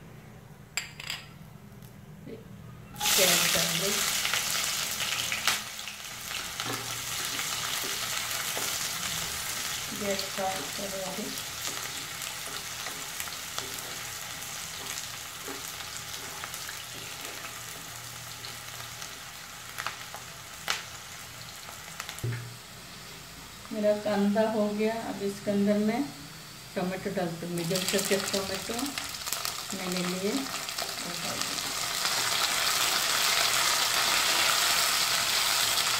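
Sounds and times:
onions sizzling in hot oil: 3.0s - 35.9s.

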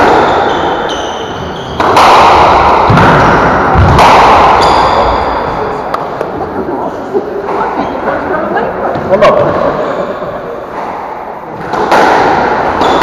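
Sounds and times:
squash ball smacking: 0.0s - 6.4s, 10.8s - 13.0s
shoes squeaking on wooden floor: 0.5s - 1.8s.

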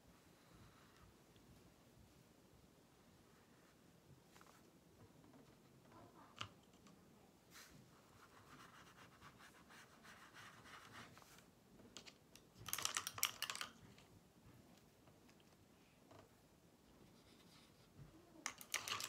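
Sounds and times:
brush scratching on paper: 7.5s - 11.4s
rapid clicks and rustling: 11.3s - 14.1s, 18.4s - 19.0s.

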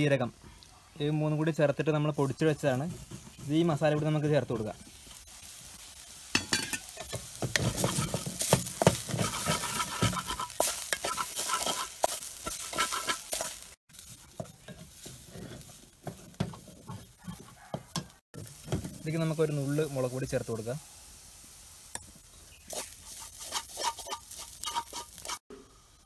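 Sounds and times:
low sizzle: 0.0s - 26.0s
wooden spatula scraping steel pan: 6.8s - 19.2s, 22.7s - 25.4s.

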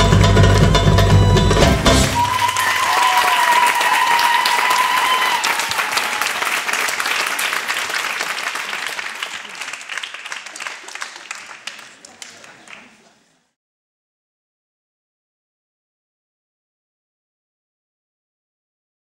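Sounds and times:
drum music: 0.0s - 2.6s
audience applauding and cheering: 0.0s - 13.1s
person holding high tone: 1.9s - 3.2s.

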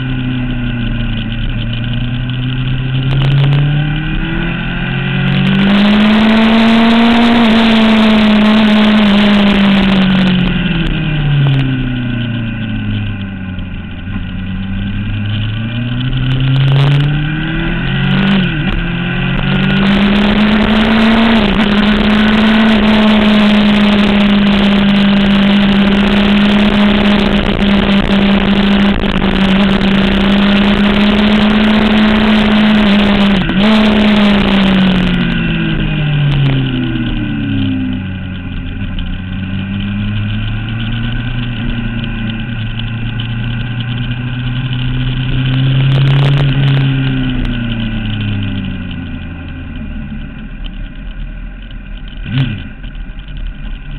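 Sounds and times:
motorcycle engine revving: 0.0s - 53.9s
wind noise: 0.0s - 53.9s.

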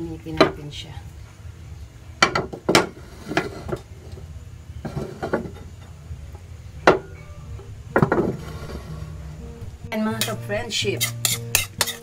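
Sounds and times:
low steady rumble: 0.0s - 10.7s
frying pan knocking on stove grate: 7.9s - 8.4s.

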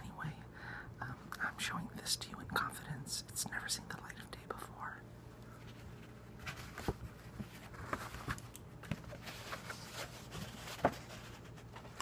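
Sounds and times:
paper rustling and crackling: 5.6s - 12.0s.

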